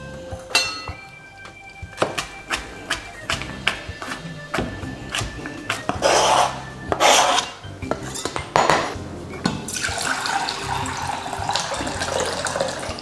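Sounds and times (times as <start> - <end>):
scrapes on a counter: 5.8 - 7.6
running tap water: 9.7 - 13.0.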